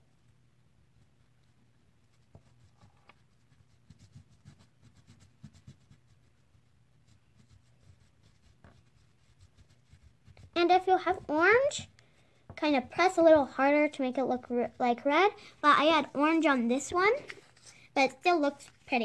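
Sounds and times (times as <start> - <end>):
crayon scratching on paper: 2.1 - 11.9.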